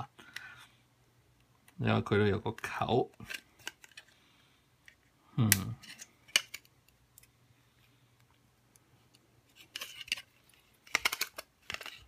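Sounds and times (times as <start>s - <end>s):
plastic shell clicking and snapping: 10.9s - 12.0s.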